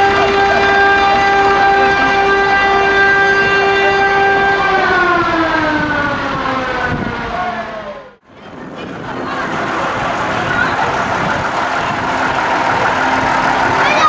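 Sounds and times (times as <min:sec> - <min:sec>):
siren tone winding down: 0:00.0 - 0:08.2
engine running: 0:00.0 - 0:14.0
street noise: 0:00.0 - 0:14.0.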